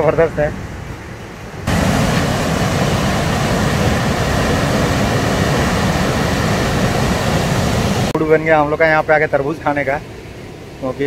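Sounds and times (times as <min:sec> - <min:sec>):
water rushing through sluice gate: 0:01.7 - 0:08.2.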